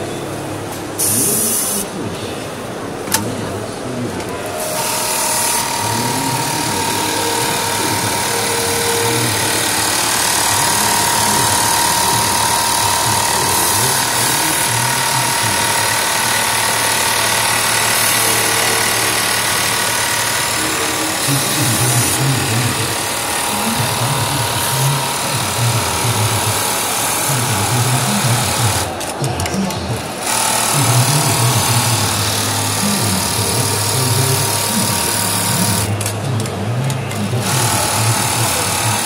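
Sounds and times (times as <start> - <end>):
sewing machine chatter and whine: 0.0 - 39.0.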